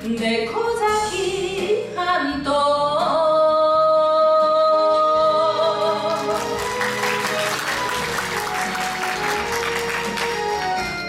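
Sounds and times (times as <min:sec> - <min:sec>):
woman singing: 0:00.0 - 0:06.6
backing music: 0:00.0 - 0:11.0.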